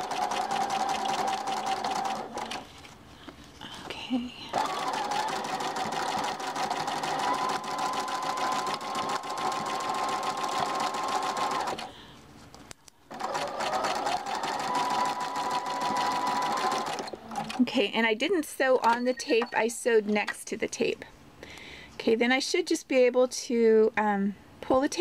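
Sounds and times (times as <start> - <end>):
electric sewing machine stitching: 0.0 - 2.7, 4.6 - 11.9, 13.1 - 17.6.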